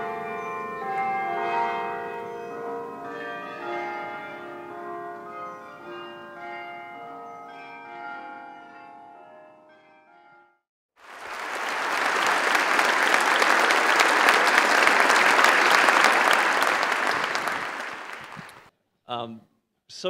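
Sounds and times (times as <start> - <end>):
audience applauding: 11.0 - 18.7.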